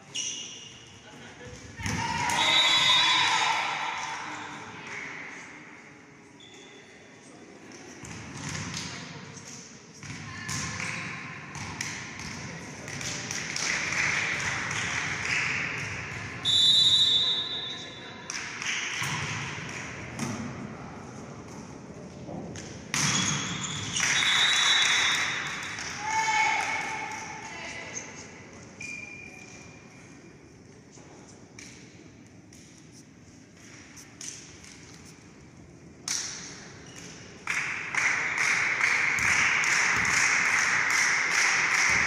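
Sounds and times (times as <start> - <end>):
referee's whistle: 2.3 - 3.1, 16.4 - 17.8, 23.1 - 25.2.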